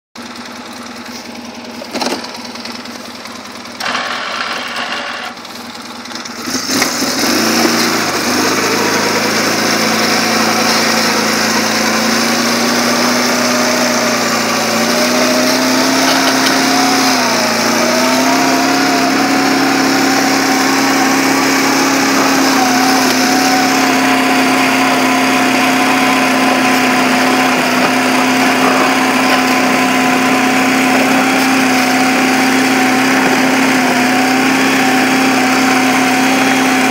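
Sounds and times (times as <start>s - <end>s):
atv engine idling and revving: 0.2s - 36.9s.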